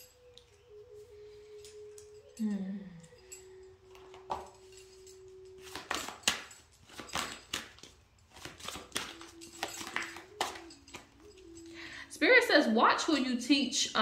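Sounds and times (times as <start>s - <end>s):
faint steady tone: 0.0s - 5.9s
small hard objects tapping: 5.6s - 11.5s.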